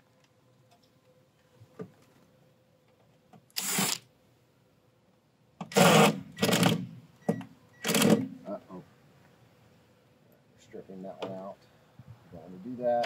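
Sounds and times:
cordless drill driving out screws: 0:03.6 - 0:04.0, 0:05.7 - 0:06.8.

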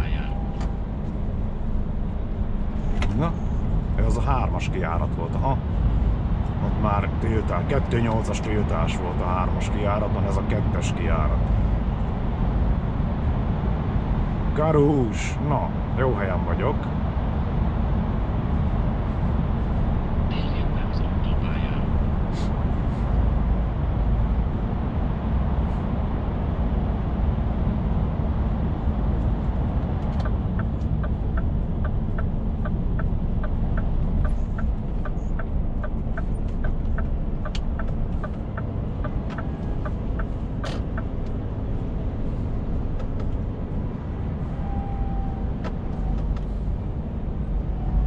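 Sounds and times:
truck engine and road noise: 0:00.0 - 0:48.0
turn signal ticking: 0:30.0 - 0:41.8.

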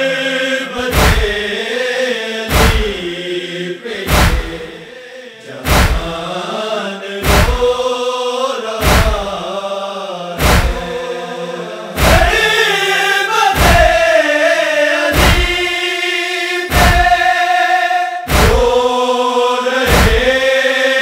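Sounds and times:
men chanting a lament: 0:00.0 - 0:21.0
chest-beating thumps: 0:00.9 - 0:01.5, 0:02.5 - 0:03.0, 0:04.1 - 0:04.8, 0:05.6 - 0:06.3, 0:07.2 - 0:07.8, 0:08.8 - 0:09.4, 0:10.4 - 0:11.0, 0:12.0 - 0:12.5, 0:13.6 - 0:14.0, 0:15.2 - 0:15.7, 0:16.7 - 0:17.3, 0:18.3 - 0:18.8, 0:19.9 - 0:20.3.

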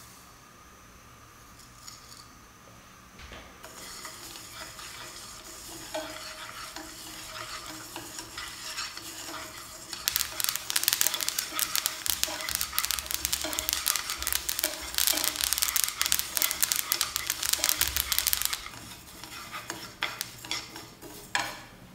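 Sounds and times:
seeds scraping in a pan: 0:03.7 - 0:21.5
seeds crackling: 0:10.0 - 0:18.8, 0:20.0 - 0:20.4.

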